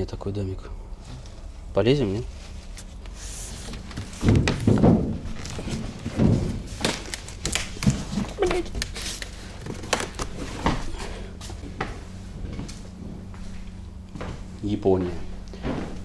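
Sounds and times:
person bumping wooden frame: 0:04.1 - 0:06.6.

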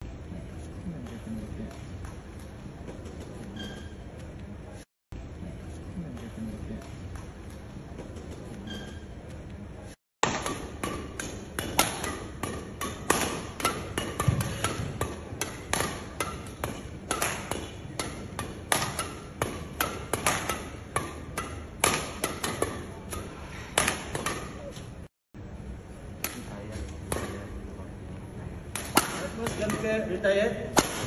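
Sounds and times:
rackets striking shuttlecock: 0:10.2 - 0:24.8, 0:26.1 - 0:27.5, 0:28.7 - 0:31.0.

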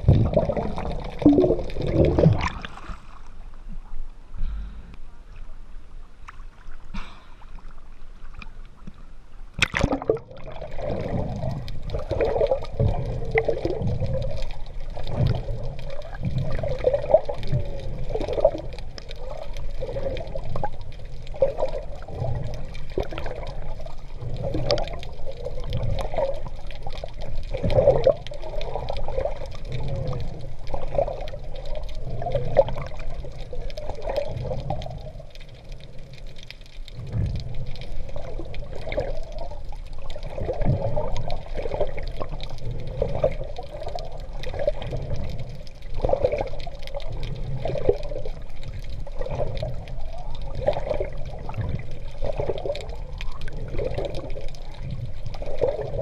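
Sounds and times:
sharp splash: 0:09.6 - 0:10.2.

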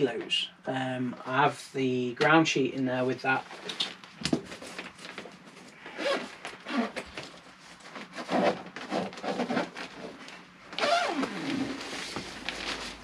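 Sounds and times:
zip being pulled open: 0:06.0 - 0:07.0, 0:10.8 - 0:12.0
fabric bag rustling: 0:10.8 - 0:13.0.

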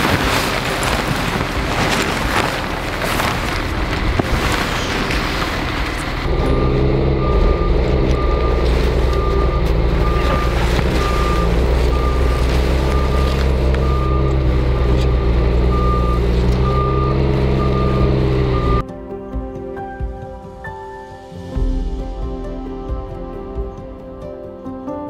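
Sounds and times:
snow groomer engine running: 0:00.0 - 0:18.8
reversing alarm beeping: 0:03.4 - 0:18.8.

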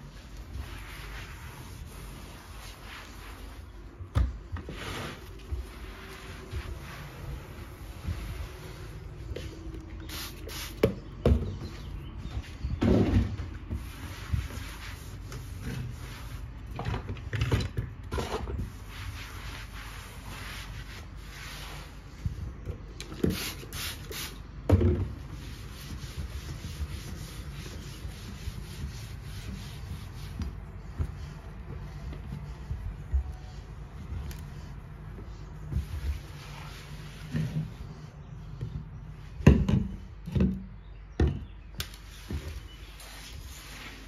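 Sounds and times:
cloth wiping countertop: 0:00.0 - 0:10.8, 0:13.7 - 0:16.6, 0:18.6 - 0:22.6, 0:25.0 - 0:38.6, 0:42.0 - 0:44.0.

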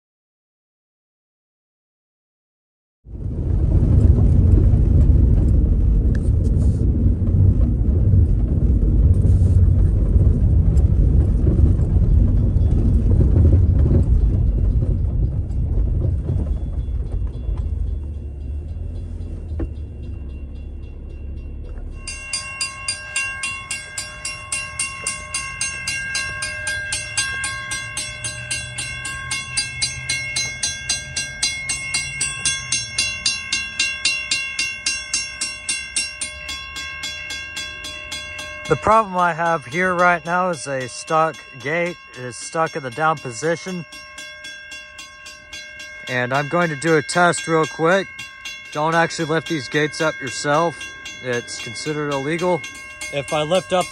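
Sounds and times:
car driving over gravel: 0:03.1 - 0:33.6
railroad crossing bell ringing: 0:07.5 - 0:53.9.

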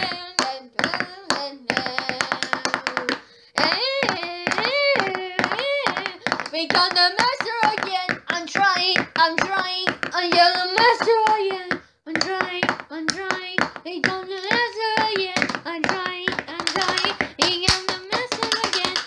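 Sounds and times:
child singing wordless syllables: 0:00.0 - 0:19.0
sharp rhythmic taps: 0:00.0 - 0:19.0.

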